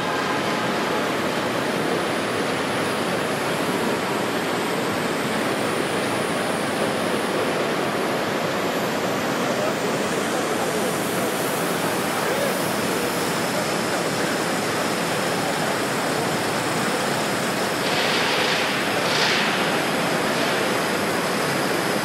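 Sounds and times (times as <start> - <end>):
steam hissing: 0.0 - 22.0.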